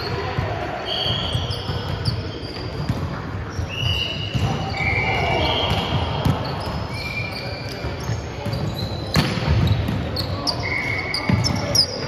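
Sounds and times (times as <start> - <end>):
sneakers squeaking on hardwood: 1.0 - 12.0
thuds of feet and balls: 7.8 - 10.2.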